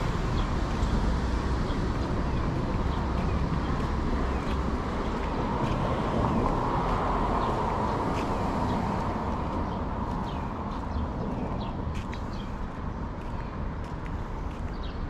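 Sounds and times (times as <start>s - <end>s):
vehicle passing: 0.0s - 13.0s
wind on microphone: 0.0s - 15.0s.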